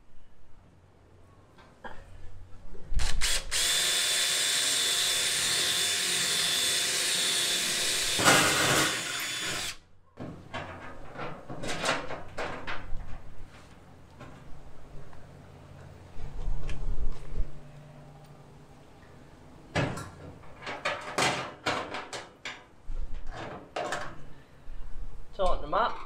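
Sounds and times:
cordless drill running: 0:03.0 - 0:09.8.

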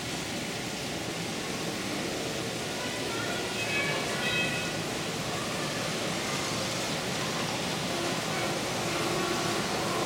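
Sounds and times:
noisy indoor hall ambience: 0:00.0 - 0:10.0
faint indistinct voices: 0:02.1 - 0:10.0.

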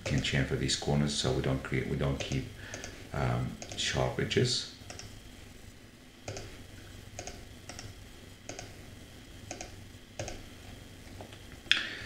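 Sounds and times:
faint steady hum: 0:00.0 - 0:12.0
computer mouse clicks: 0:02.2 - 0:03.0, 0:03.6 - 0:03.8, 0:04.8 - 0:05.2, 0:06.2 - 0:06.5, 0:07.1 - 0:08.8, 0:09.4 - 0:10.5.

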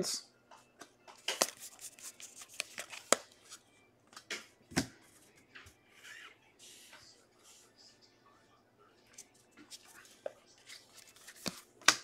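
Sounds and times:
cards clicking and tapping: 0:00.8 - 0:03.4, 0:10.2 - 0:12.0.

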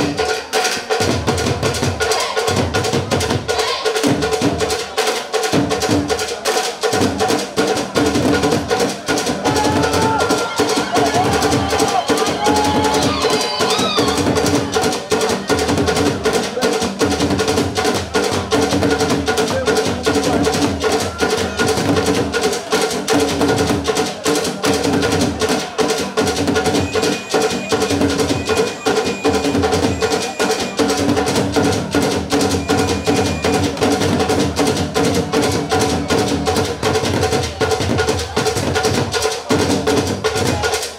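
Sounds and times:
drum ensemble playing fast rhythm: 0:00.0 - 0:40.9
high held tones: 0:26.5 - 0:34.4.

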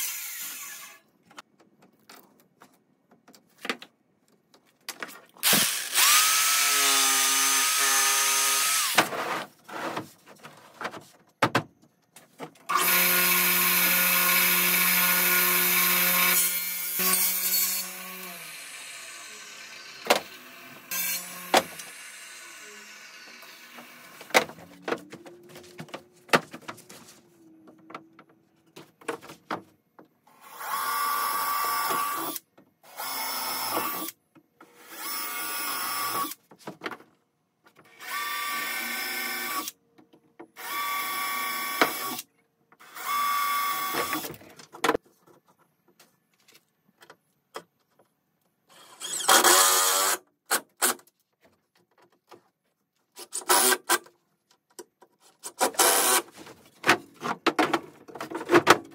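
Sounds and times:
power drill driving screws: 0:05.4 - 0:09.0, 0:12.7 - 0:24.2, 0:48.7 - 0:50.2, 0:53.3 - 0:54.0, 0:55.6 - 0:56.3.

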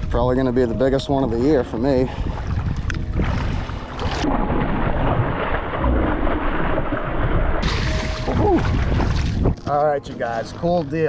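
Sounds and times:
wind rumbling on microphone: 0:00.0 - 0:09.7
fish splashing in shallow water: 0:02.2 - 0:09.6.

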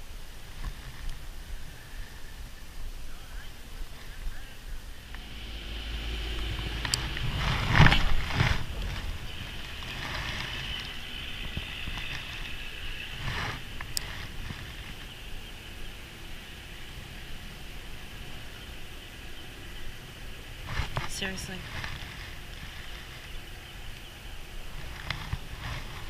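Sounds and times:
fishing rod handling rustles and knocks: 0:06.7 - 0:15.1, 0:20.7 - 0:23.4, 0:24.7 - 0:26.0.

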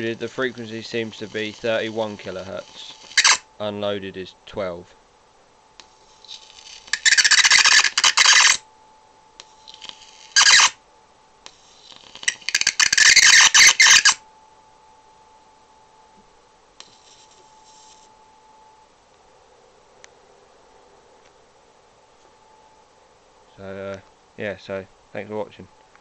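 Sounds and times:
electric arc buzzing hiss: 0:00.0 - 0:04.0, 0:05.7 - 0:08.6, 0:09.4 - 0:10.8, 0:11.4 - 0:14.2, 0:16.8 - 0:18.1
faint steady high tone: 0:00.0 - 0:05.0, 0:05.7 - 0:20.0, 0:21.4 - 0:25.9.

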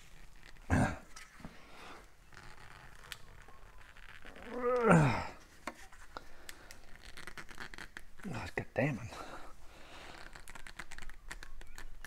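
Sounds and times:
man grunting: 0:00.7 - 0:01.0, 0:04.5 - 0:05.4.

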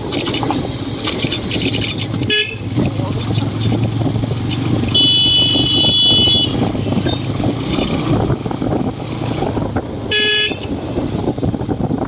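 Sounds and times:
motorcycle engine running: 0:00.0 - 0:12.0
wind and road noise: 0:00.0 - 0:12.0
horn beeping: 0:02.2 - 0:02.7, 0:04.9 - 0:07.2, 0:10.1 - 0:10.7.

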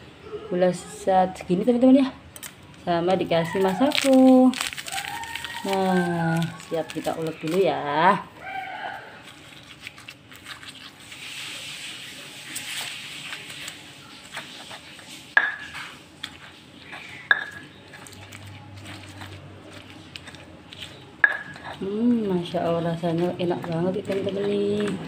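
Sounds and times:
pestle grinding in stone mortar: 0:09.2 - 0:25.0.

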